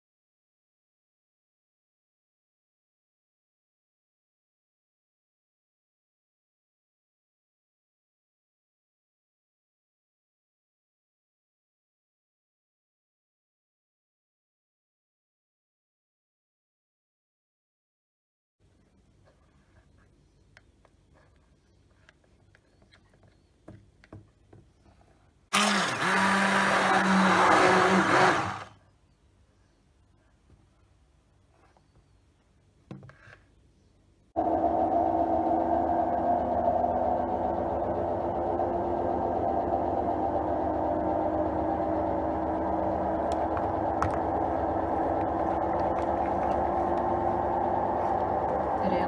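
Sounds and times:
hand blender motor hum: 25.5 - 28.7, 34.4 - 49.0.

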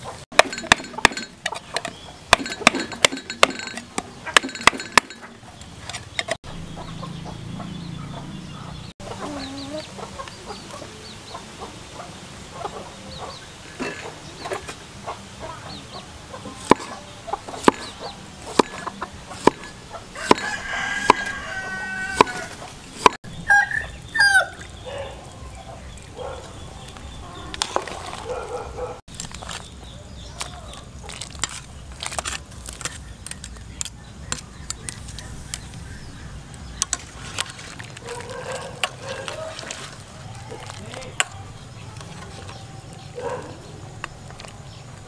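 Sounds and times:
chickens clucking and crowing: 0.0 - 31.9, 33.9 - 45.0
knife chopping on wooden board: 16.6 - 17.0, 17.6 - 21.4, 22.1 - 23.2.

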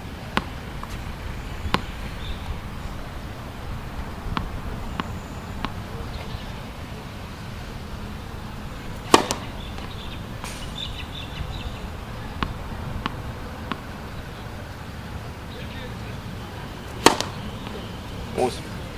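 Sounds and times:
racket hitting tennis ball: 0.3 - 2.1, 9.0 - 10.8, 12.2 - 14.1, 16.9 - 17.8
tennis ball bouncing on hard court: 1.6 - 2.4, 4.3 - 6.4, 9.0 - 10.1, 12.1 - 14.1, 16.9 - 17.8.

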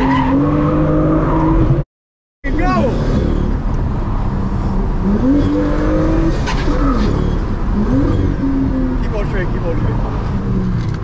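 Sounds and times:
road noise rumble: 2.4 - 11.0
car engine revving: 2.5 - 11.0.

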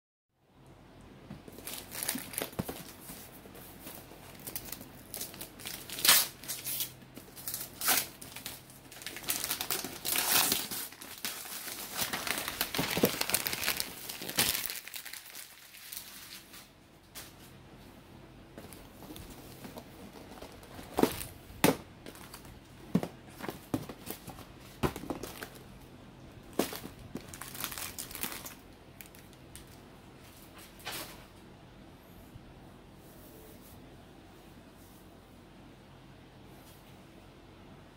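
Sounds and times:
plastic packaging crinkling and tearing: 1.5 - 16.7, 18.6 - 25.6, 26.4 - 29.8.

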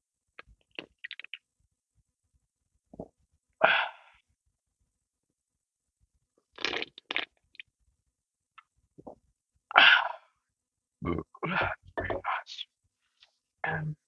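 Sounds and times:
person swallowing: 6.6 - 7.3, 9.0 - 9.2, 11.0 - 12.3.

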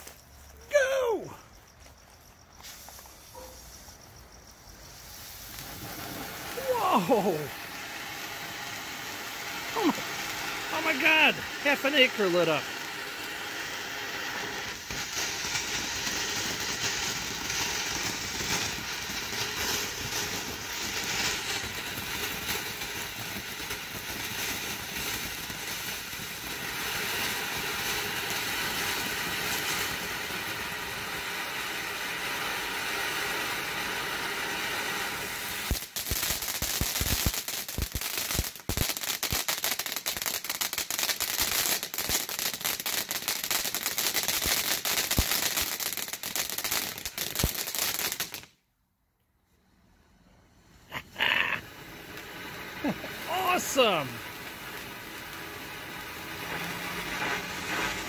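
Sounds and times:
firework fountain hissing: 0.0 - 48.6, 49.6 - 58.0
crackling and popping: 5.4 - 7.6, 50.9 - 58.0.

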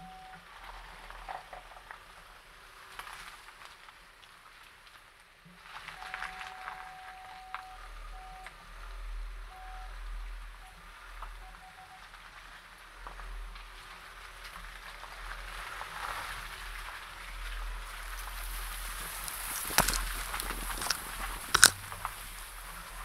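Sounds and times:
car engine low rumble: 0.0 - 23.0
tyres crackling on dirt: 12.0 - 23.0.

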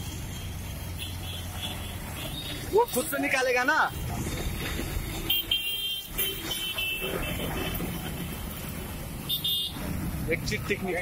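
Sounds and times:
road traffic rumble: 0.0 - 11.0
vehicle horns honking: 0.9 - 2.9, 5.2 - 7.9, 9.2 - 9.9.

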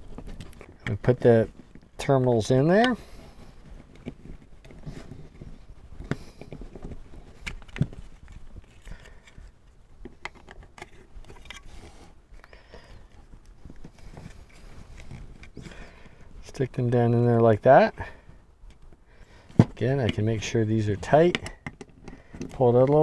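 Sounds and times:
handling noise: 0.0 - 18.0.

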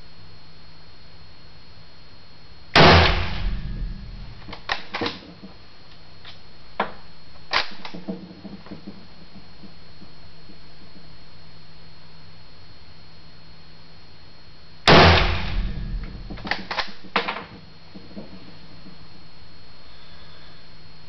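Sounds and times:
rifle shot ringing in a room: 2.8 - 5.1, 14.9 - 17.1.

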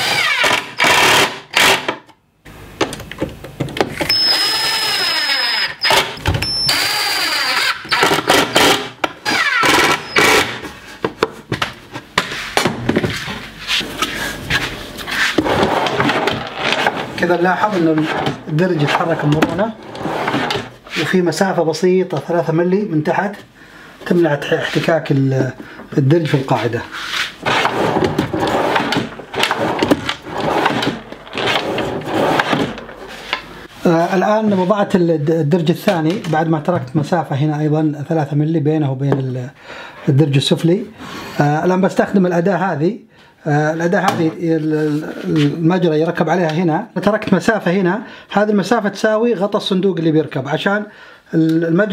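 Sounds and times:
cordless driver driving a screw: 4.1 - 10.6
drawer sliding with metal rattles: 14.5 - 20.8, 27.4 - 33.5.

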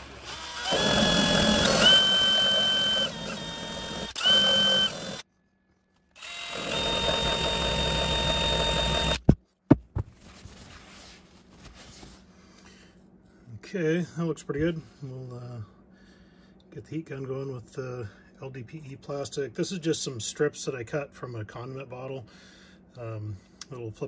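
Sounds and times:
grinding tool motor whining: 0.0 - 5.3, 6.1 - 9.3
knocks: 9.2 - 10.1.

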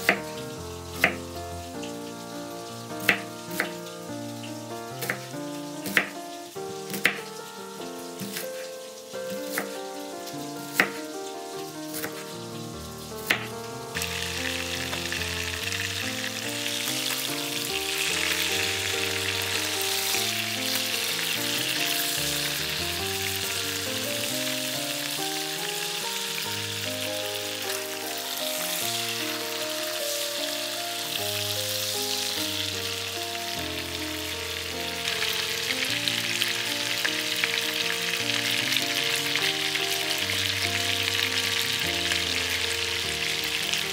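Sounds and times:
background music: 0.0 - 43.9
chicken sizzling in frying pan: 0.0 - 43.9
knife chopping on wooden board: 6.9 - 7.2.

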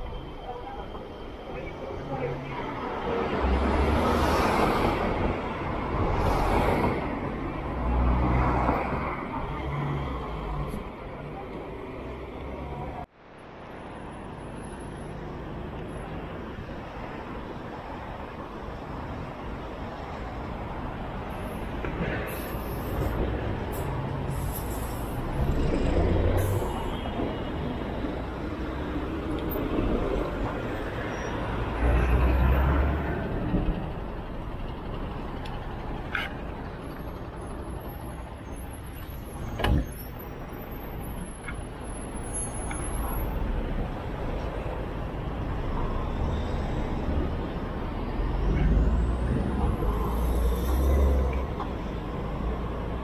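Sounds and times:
city street traffic: 0.0 - 53.0.

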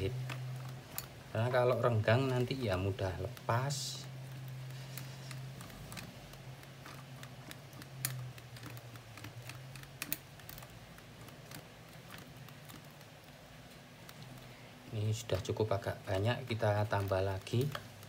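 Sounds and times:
thread winding clicks: 0.0 - 14.5.

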